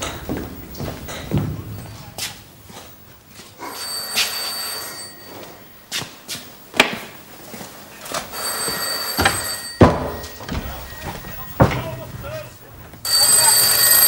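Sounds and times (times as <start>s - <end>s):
desk telephone ringing: 3.6s - 5.7s, 8.3s - 11.6s, 13.0s - 14.0s
knocks and thuds: 9.3s - 12.0s.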